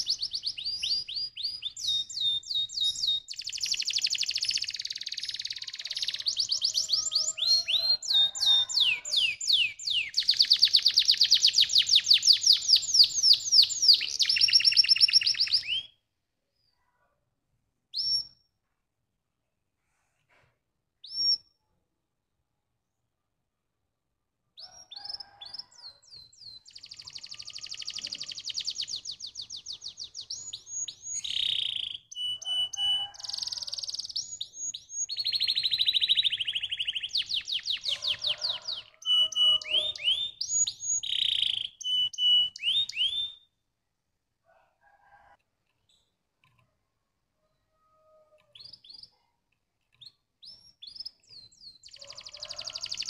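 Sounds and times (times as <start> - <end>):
canary singing trills: 0.0 - 16.0, 24.6 - 43.5, 49.9 - 53.0.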